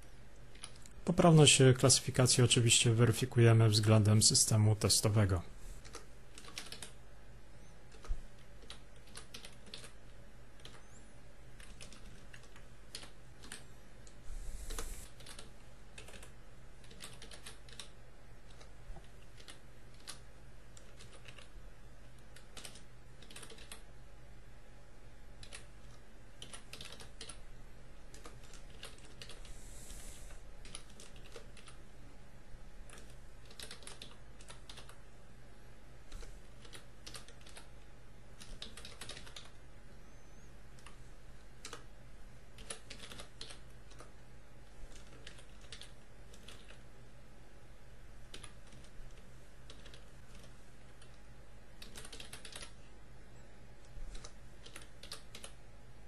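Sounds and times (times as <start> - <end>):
faint low hum: 0.0 - 56.0
keyboard typing: 0.4 - 1.0, 5.8 - 7.0, 7.6 - 10.9, 11.6 - 23.9, 25.4 - 27.4, 28.1 - 29.6, 30.6 - 31.8, 32.8 - 35.0, 36.1 - 37.8, 38.4 - 39.6, 41.6 - 41.9, 42.6 - 44.3, 44.9 - 46.9, 48.2 - 52.8, 53.8 - 55.6.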